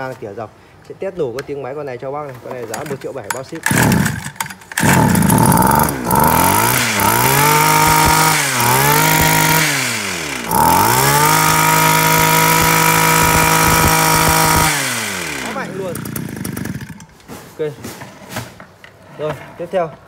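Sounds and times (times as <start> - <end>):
hedge trimmer engine revving: 2.7 - 17.4.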